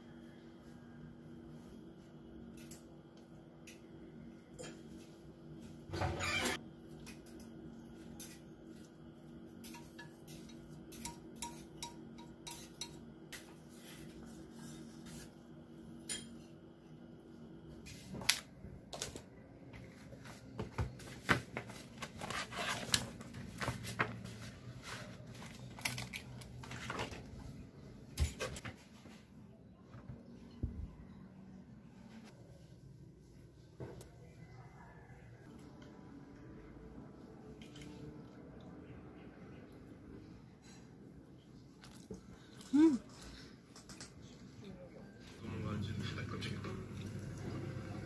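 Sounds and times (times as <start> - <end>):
papers rustling: 21.1 - 27.5.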